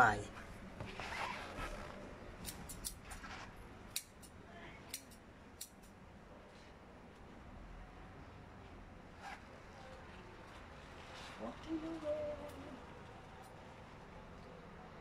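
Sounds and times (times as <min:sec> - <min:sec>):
scissors snipping: 0:02.4 - 0:06.0.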